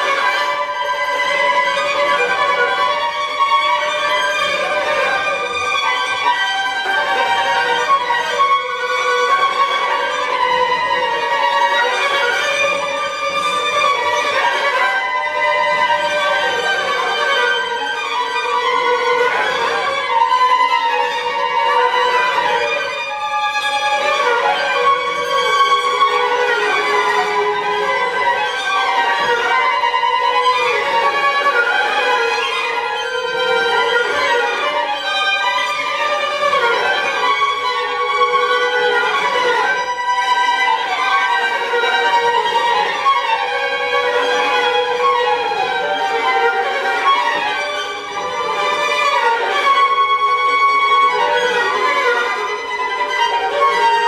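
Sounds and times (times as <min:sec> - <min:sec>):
string quartet playing: 0:00.0 - 0:54.0.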